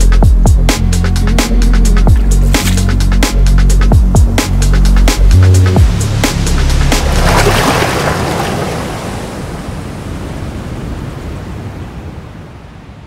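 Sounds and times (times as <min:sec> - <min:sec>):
ocean surf: 0:06.0 - 0:13.0.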